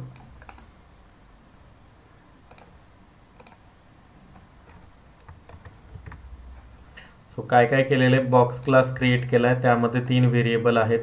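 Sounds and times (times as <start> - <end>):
faint room hiss: 0.0 - 11.0
computer keyboard and mouse clicks: 0.1 - 0.7, 2.5 - 2.7, 3.4 - 3.6, 4.3 - 6.3.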